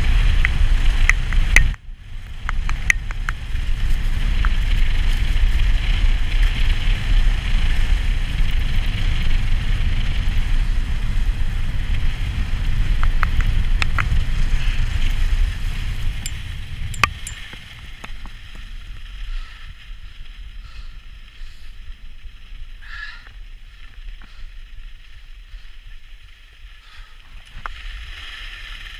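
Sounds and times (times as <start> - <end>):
wind rumble on microphone: 0.0 - 28.9
sharp clicks: 17.0 - 18.2
skis scraping over snow: 17.5 - 28.9.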